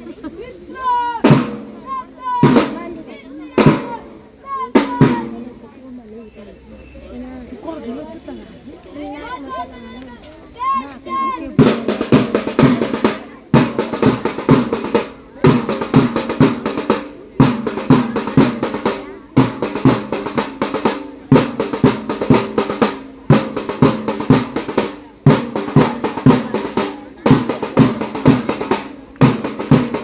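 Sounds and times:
drum beaten with a stick: 0:01.2 - 0:05.6, 0:11.5 - 0:30.0.

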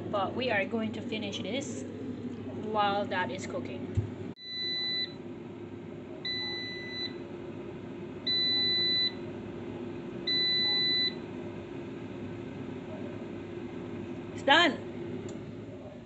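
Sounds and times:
steady hum: 0:00.0 - 0:16.0.

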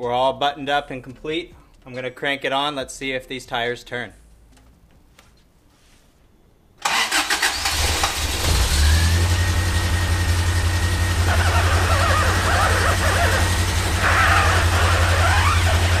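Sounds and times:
car engine cranking and idling: 0:06.8 - 0:16.0
power steering whine: 0:06.8 - 0:16.0.

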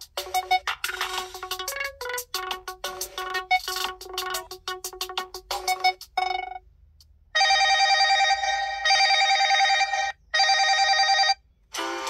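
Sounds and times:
ringtone melody of short notes: 0:00.1 - 0:06.6.

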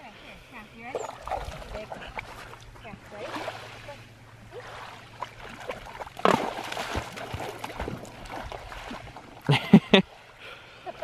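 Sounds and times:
waves lapping on gravel: 0:01.0 - 0:09.4
dog splashing in water: 0:04.5 - 0:09.3.

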